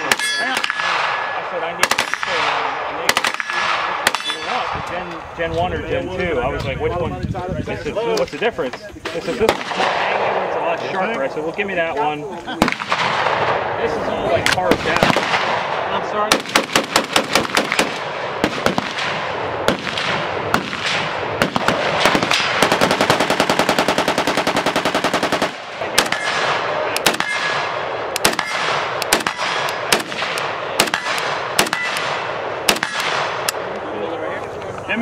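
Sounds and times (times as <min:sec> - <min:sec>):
gunshots: 0:00.0 - 0:04.9, 0:09.2 - 0:10.7, 0:12.6 - 0:33.7
automatic gunfire burst: 0:16.3 - 0:33.3.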